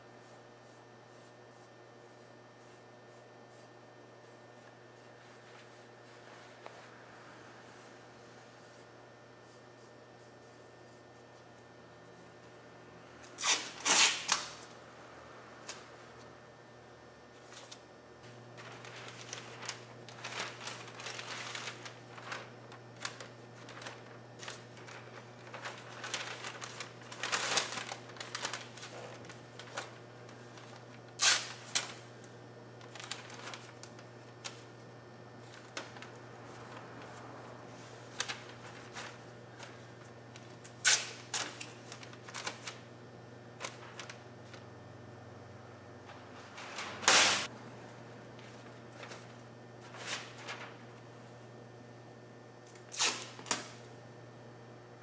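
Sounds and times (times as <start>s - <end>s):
steady low hum: 0.0s - 55.0s
masking tape tearing and crinkling: 13.3s - 14.6s, 18.6s - 29.9s, 31.1s - 32.0s, 40.8s - 42.8s, 46.8s - 47.5s, 52.7s - 53.8s.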